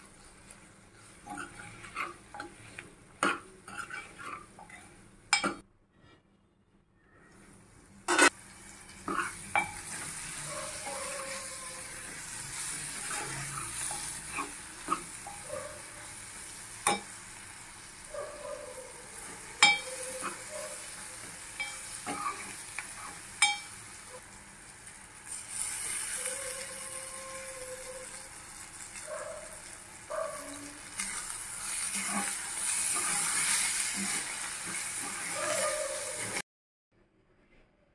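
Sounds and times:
curry sizzling in pot: 0.0 - 5.6, 8.0 - 36.4
spoon scraping pot: 1.0 - 5.6
spoon clinking on pot: 19.6 - 20.0, 23.4 - 23.8.

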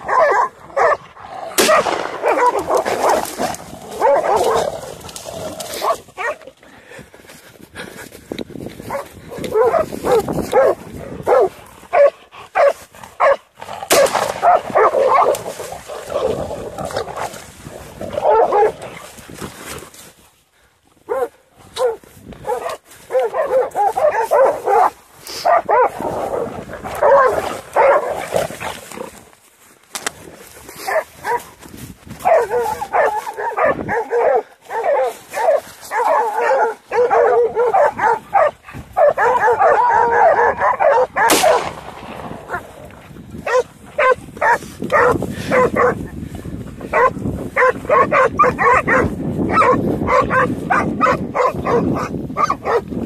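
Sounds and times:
dogs barking and yipping: 0.0 - 6.6, 8.8 - 19.2, 21.0 - 28.7, 30.5 - 46.2, 46.8 - 53.0.

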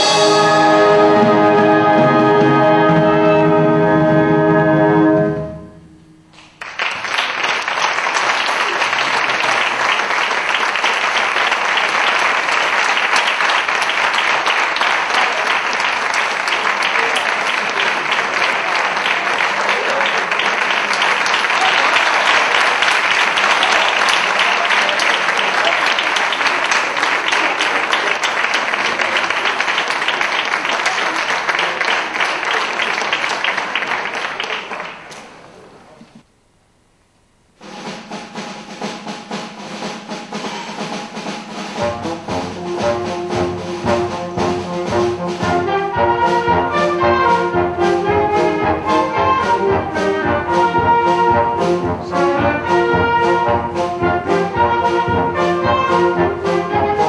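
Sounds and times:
brass chord: 0.0 - 6.4, 37.6 - 57.0
audience applause: 6.4 - 36.0.

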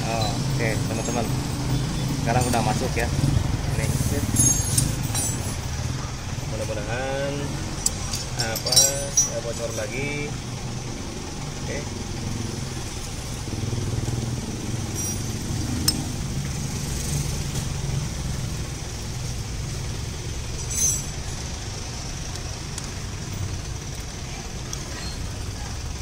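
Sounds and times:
vehicle engine rumbling: 0.0 - 26.0
metallic clink: 4.3 - 5.7, 7.8 - 10.2, 14.9 - 16.2, 20.4 - 21.5.

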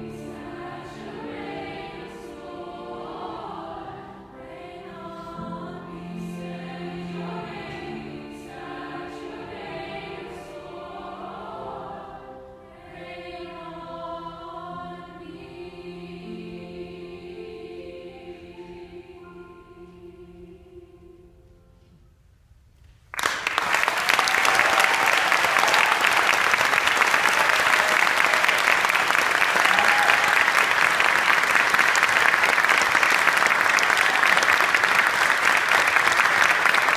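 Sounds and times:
choir singing soft chord: 0.0 - 22.1
audience applause: 23.1 - 36.9.

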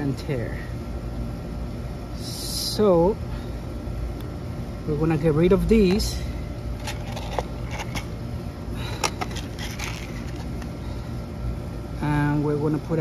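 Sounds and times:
low background hum: 0.0 - 13.0
small metal parts clicking: 6.8 - 8.1, 9.0 - 10.7.

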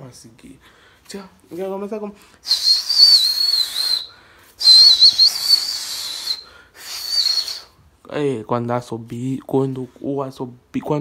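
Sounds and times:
man whistling through fingers: 2.4 - 7.8.

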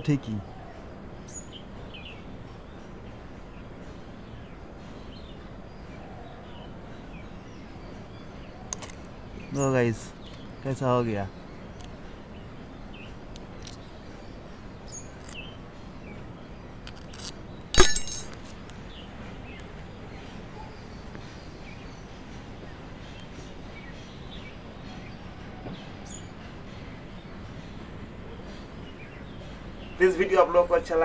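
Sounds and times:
outdoor background noise: 0.0 - 31.0
metal spoon clattering on concrete: 16.9 - 18.4.

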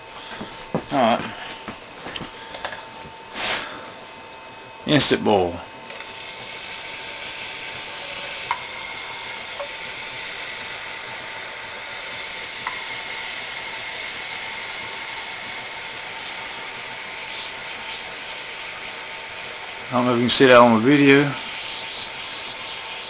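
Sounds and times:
torch flame hissing: 0.1 - 4.2, 5.0 - 23.0
water sizzling on hot metal: 6.0 - 23.0.

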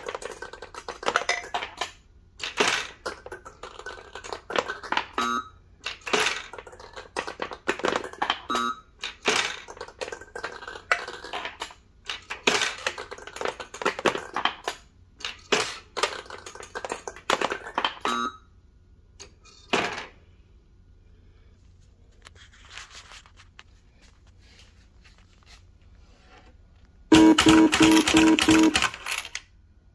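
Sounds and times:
balls clattering through game: 0.0 - 18.2, 19.2 - 20.4, 27.1 - 29.4.

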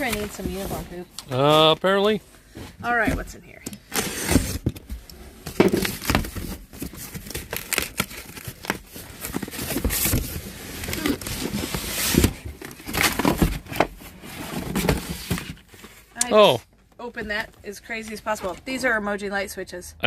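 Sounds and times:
cardboard rustling and knocks: 0.0 - 1.0, 4.3 - 15.8.

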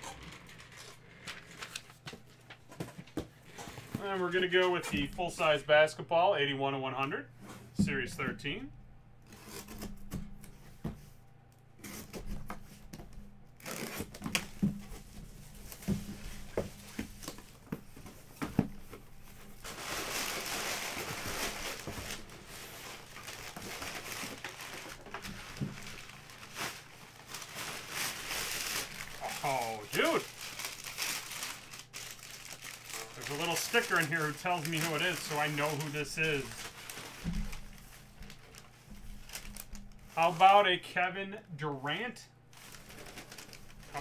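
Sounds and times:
packing paper crinkling: 0.0 - 2.7, 13.6 - 40.6, 42.5 - 44.0.

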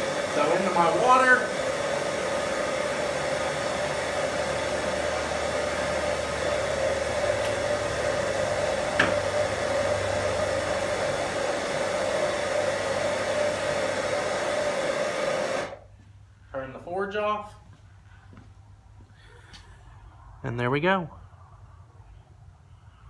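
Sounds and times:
gas forge burner roaring: 0.0 - 15.9.

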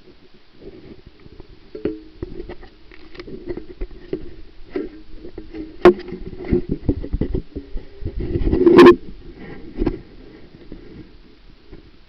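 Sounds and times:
low steady hum: 0.0 - 12.0
underwater clicks and knocks: 1.2 - 9.1.

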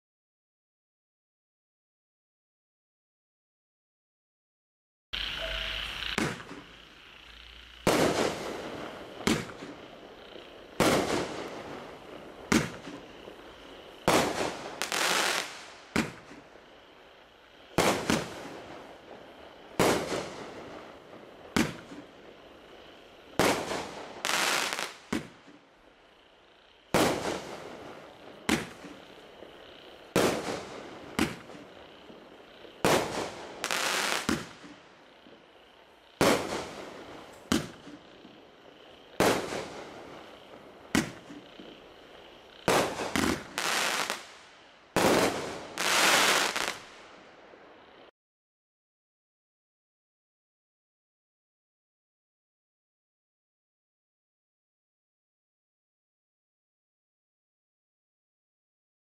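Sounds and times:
firework bangs: 5.5 - 6.7, 7.8 - 9.8, 10.8 - 13.4, 14.0 - 16.5, 17.7 - 18.9, 19.8 - 22.3, 23.3 - 25.6, 26.9 - 34.8, 36.2 - 38.3, 39.1 - 41.9, 42.6 - 47.0.

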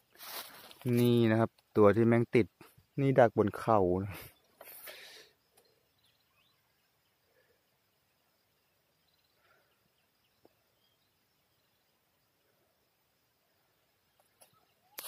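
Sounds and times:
soft ticks and rustles: 0.1 - 1.8.

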